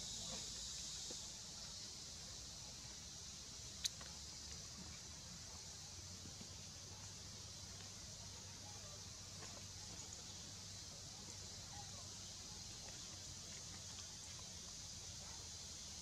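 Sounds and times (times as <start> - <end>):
high-pitched hiss: 0.0 - 16.0.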